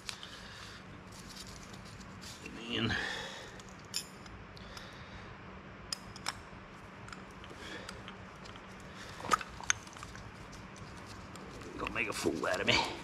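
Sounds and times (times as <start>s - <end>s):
faint steady hum: 0.0s - 13.0s
metal clicks of brake parts: 5.9s - 6.4s.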